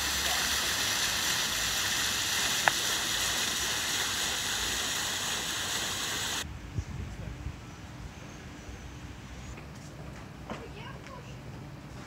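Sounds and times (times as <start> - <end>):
water rushing and splashing: 0.0 - 6.4.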